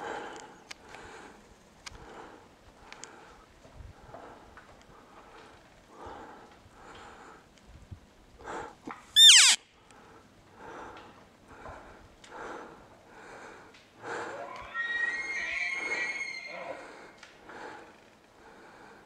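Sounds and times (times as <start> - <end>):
elk call whistle: 9.2 - 9.6.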